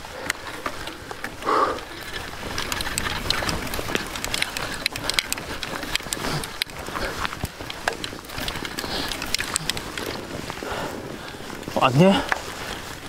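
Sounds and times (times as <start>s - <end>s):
bike tyres crunching on snow: 0.0s - 13.0s.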